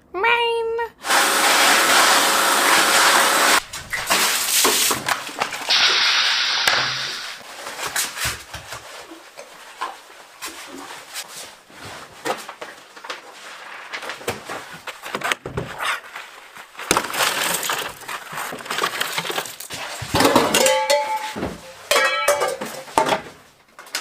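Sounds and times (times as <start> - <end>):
crashing: 16.7 - 23.4
knocks and clatters: 16.8 - 24.0.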